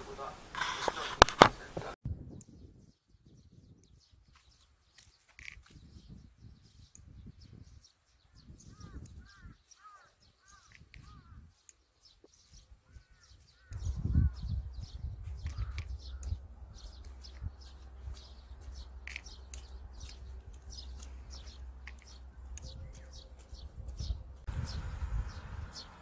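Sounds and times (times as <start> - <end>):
small birds chirping: 1.6 - 26.0
wind rumble on microphone: 2.0 - 4.6, 5.5 - 9.6, 10.4 - 11.6, 12.4 - 26.0
short caw-like bird calls: 8.7 - 11.4, 15.5 - 16.3.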